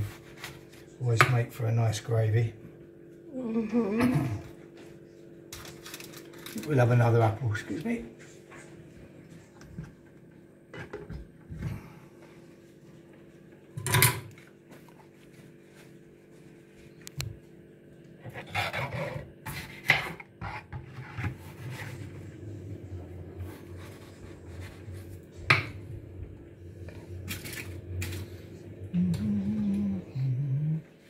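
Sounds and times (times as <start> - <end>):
steady low hum: 0.0 - 31.0
objects clattering and rubbing: 26.8 - 28.7.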